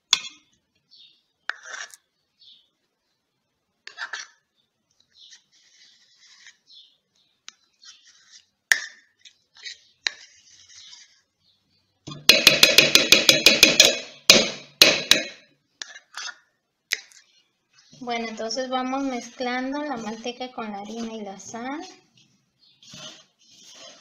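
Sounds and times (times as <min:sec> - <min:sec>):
metal spoon scraping plastic cup: 0:01.5 - 0:02.0, 0:03.9 - 0:04.4, 0:09.2 - 0:11.2, 0:15.8 - 0:24.0
spoon tapping a cup: 0:12.1 - 0:15.3.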